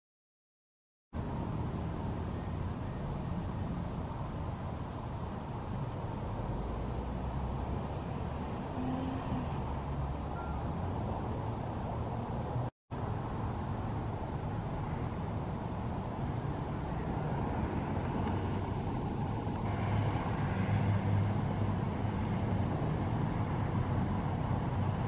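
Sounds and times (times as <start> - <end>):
swifts chittering: 3.2 - 7.4.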